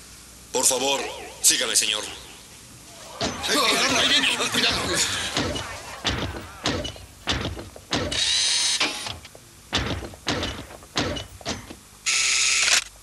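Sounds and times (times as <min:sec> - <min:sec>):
robot mechanical thunks with whir: 0:05.4 - 0:11.8.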